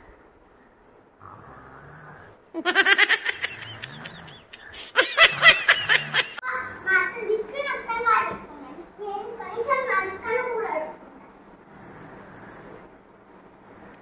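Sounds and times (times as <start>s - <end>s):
children laughing: 2.6s - 6.5s.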